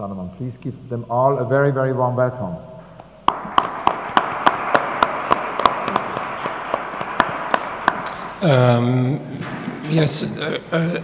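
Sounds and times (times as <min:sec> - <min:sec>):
audience applause: 0:03.3 - 0:09.2.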